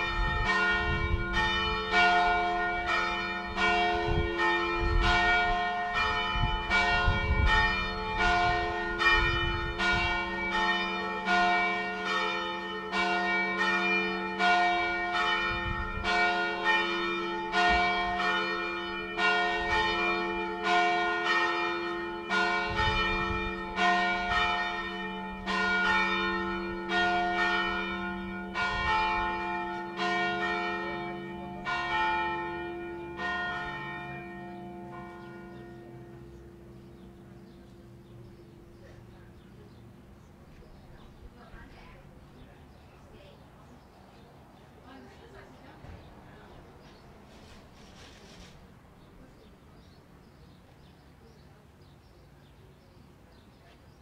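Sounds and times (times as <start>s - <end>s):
church bells ringing: 0.0s - 42.8s.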